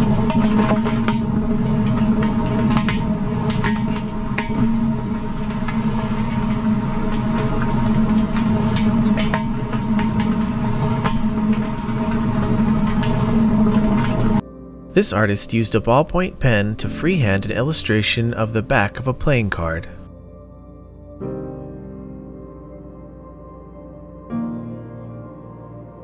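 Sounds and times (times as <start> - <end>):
tire road noise droning hum: 0.0 - 14.4.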